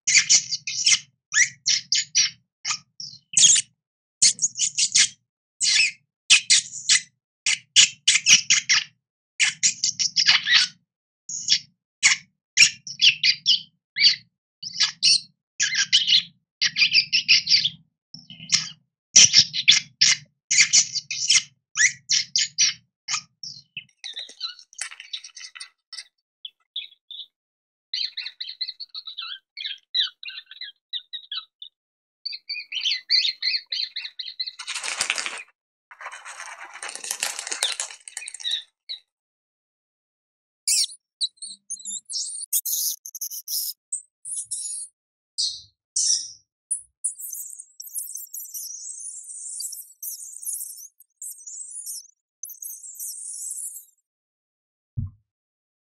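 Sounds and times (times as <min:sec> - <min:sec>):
rodents squeaking: 0:00.1 - 0:07.0, 0:23.1 - 0:26.1, 0:32.6 - 0:38.6, 0:40.7 - 0:44.9, 0:46.0 - 0:53.9
rustling: 0:34.6 - 0:38.6.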